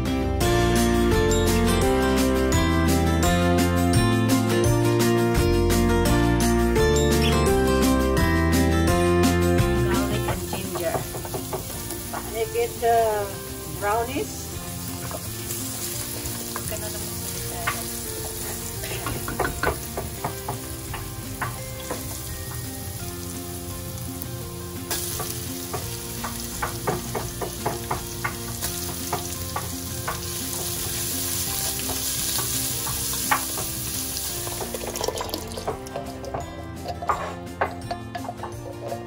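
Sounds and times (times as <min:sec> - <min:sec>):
food sizzling in hot oil: 0:09.3 - 0:36.5.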